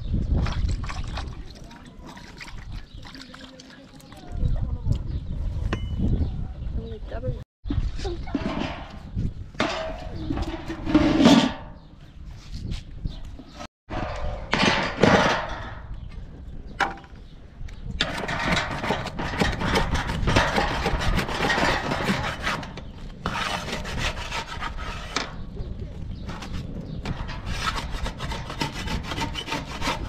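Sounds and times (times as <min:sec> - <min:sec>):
metal spatula scraping metal griddle: 0:08.3 - 0:11.8, 0:18.0 - 0:25.4.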